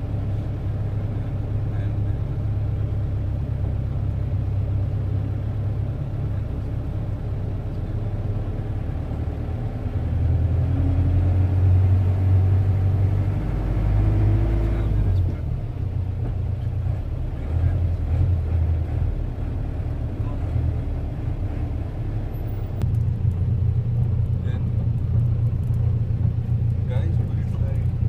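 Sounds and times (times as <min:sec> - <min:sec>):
vehicle engine and road rumble: 0:00.0 - 0:28.0.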